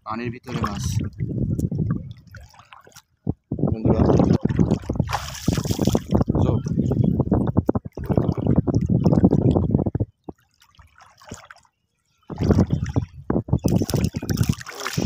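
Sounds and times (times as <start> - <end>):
river water splashing: 0.4 - 1.2, 2.1 - 3.1, 4.2 - 6.2, 10.4 - 11.7, 13.7 - 15.0.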